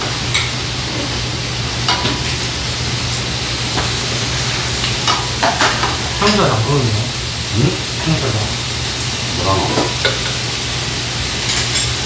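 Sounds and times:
beef sizzling in frying pan: 0.0 - 12.0
utensils clinking on dishes: 11.4 - 12.0.

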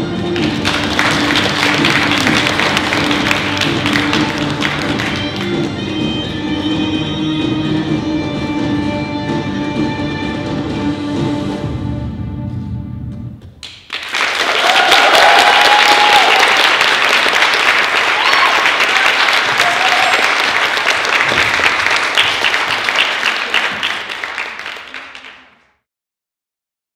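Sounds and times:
music: 0.0 - 13.6
audience applauding: 0.2 - 6.0, 13.6 - 25.7
whoops and cheers: 14.4 - 16.7, 18.0 - 20.4.

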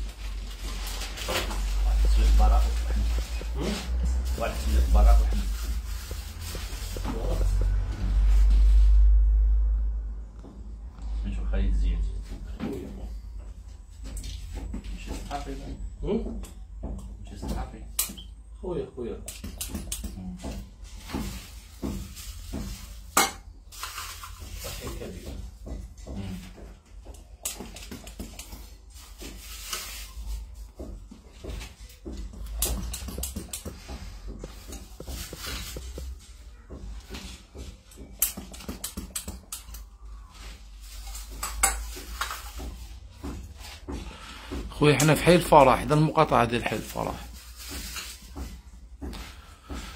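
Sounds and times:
plastic cups clicking and clattering: 22.7 - 25.0
plastic cups and pump clicking: 31.4 - 36.2, 37.8 - 39.9.

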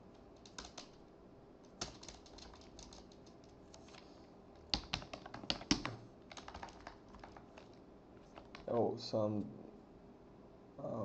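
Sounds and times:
typing on computer keyboard: 0.4 - 1.0, 1.7 - 4.0, 4.6 - 8.9.

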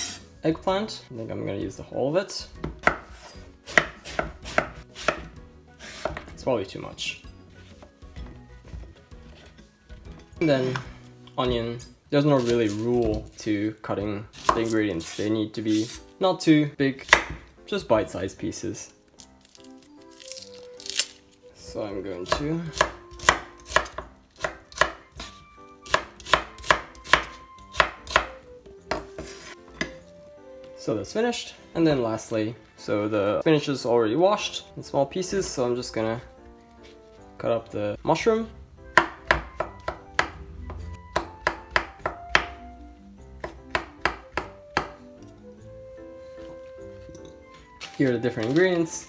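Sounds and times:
knife chopping on wooden board: 2.6 - 6.4, 14.4 - 15.2, 17.0 - 17.5, 22.2 - 30.0, 38.9 - 42.7, 43.4 - 45.1
knife slicing on wooden board: 29.0 - 30.0.

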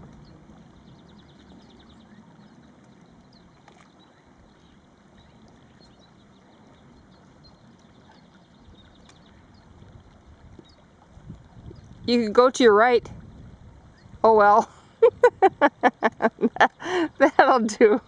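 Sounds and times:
small birds chirping: 0.0 - 11.0, 13.8 - 14.6.

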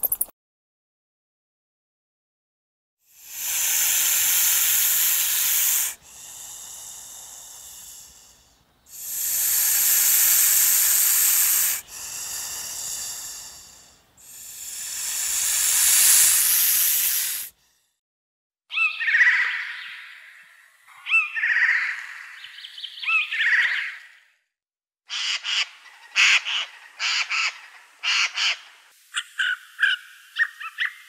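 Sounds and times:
snake hissing: 3.1 - 17.9.

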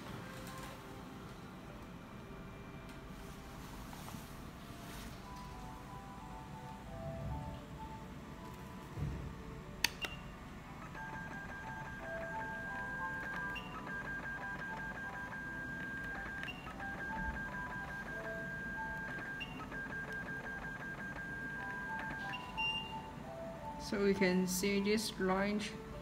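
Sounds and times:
machine beeping rapidly: 10.0 - 23.1.

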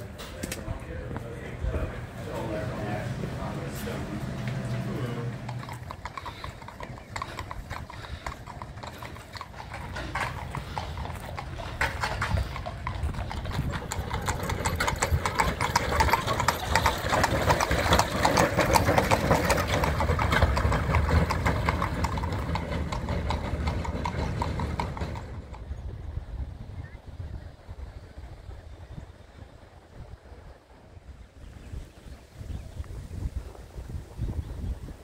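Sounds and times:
hooves clip-clopping on pavement: 0.0 - 26.6.

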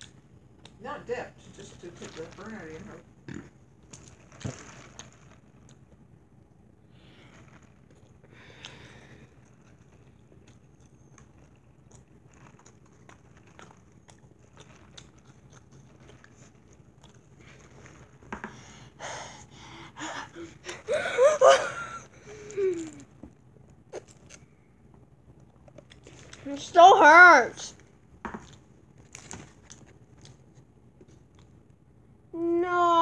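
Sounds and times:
boy breathing hard and gasping: 18.5 - 22.8
boy crying out: 20.0 - 23.0.

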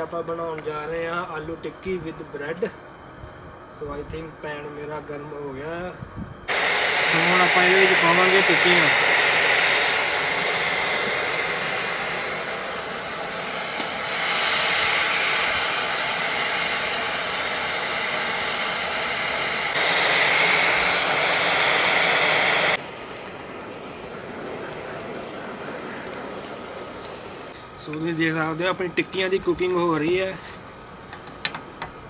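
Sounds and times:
camp stove burner hissing: 0.0 - 32.0
patties frying in oil: 23.0 - 30.5.

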